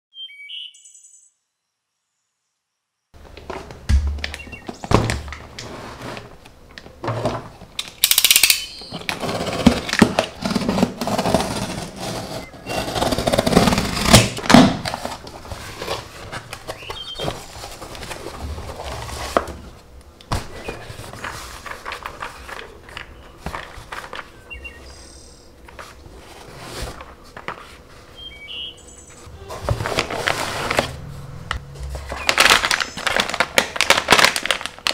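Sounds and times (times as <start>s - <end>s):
knocks of small boxes handled: 3.2s - 5.7s
cardboard crackling and rustling: 3.2s - 7.8s, 8.8s - 24.8s, 25.6s - 28.3s, 29.2s - 34.9s
packing tape ripping: 7.8s - 18.2s, 29.6s - 31.0s, 31.9s - 34.9s.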